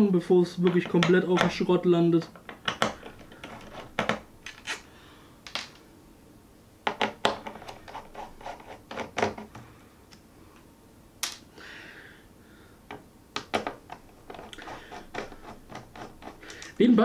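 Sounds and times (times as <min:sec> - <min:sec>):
screwdriver scraping: 0:02.4 - 0:04.9, 0:06.9 - 0:09.6, 0:13.5 - 0:16.8.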